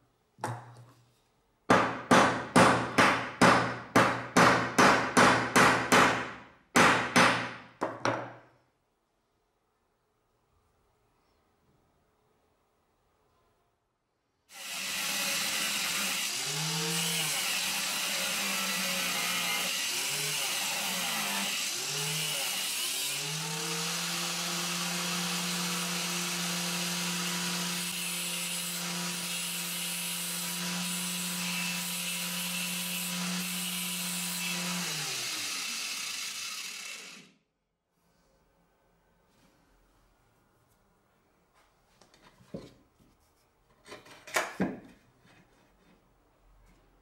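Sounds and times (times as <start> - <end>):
angle grinder cutting steel: 14.5 - 37.3.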